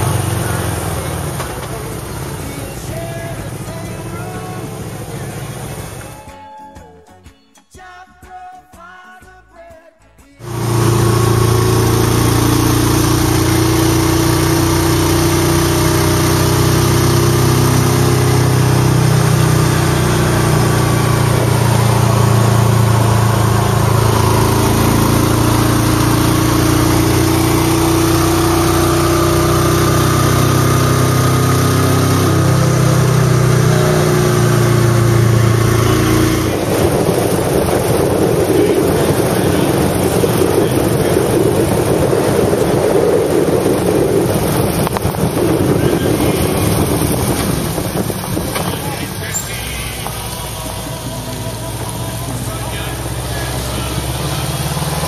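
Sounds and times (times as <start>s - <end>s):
vehicle engine hum: 0.0s - 6.3s, 10.4s - 55.0s
wind rush: 35.1s - 49.2s.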